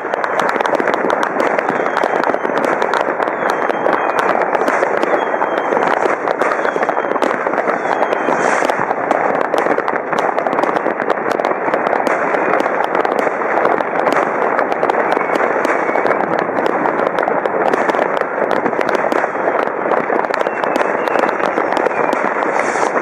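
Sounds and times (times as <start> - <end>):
fireworks crackling and banging: 0.0 - 23.0
rocket whistles: 1.4 - 8.9, 14.7 - 16.4, 20.2 - 23.0.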